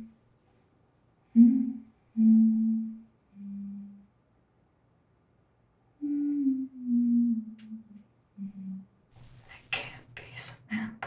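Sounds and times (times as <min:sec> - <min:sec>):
soft low melody: 0:01.4 - 0:04.0.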